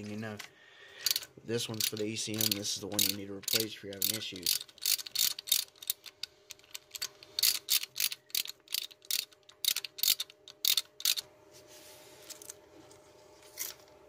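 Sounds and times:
ratchet clicking: 1.0s - 11.2s.

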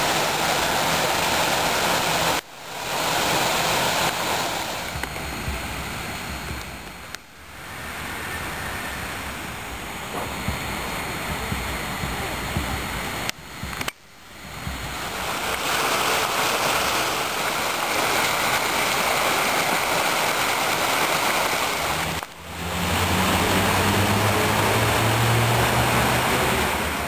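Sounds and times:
low steady hum: 0.0s - 20.6s
fountains splashing: 0.0s - 27.0s.

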